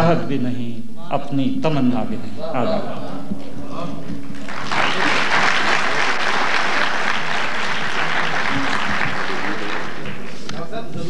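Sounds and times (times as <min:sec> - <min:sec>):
audience applauding: 0:04.2 - 0:10.8.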